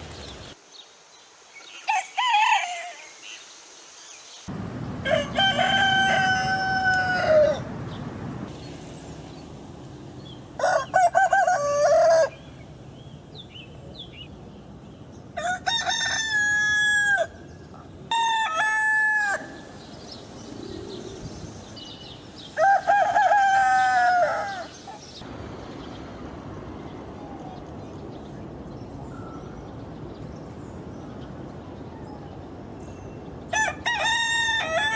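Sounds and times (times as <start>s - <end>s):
roosters crowing: 1.8s - 3.2s, 5.0s - 7.7s, 10.6s - 12.6s, 15.4s - 17.5s, 18.1s - 19.9s, 22.4s - 24.9s, 33.5s - 34.9s.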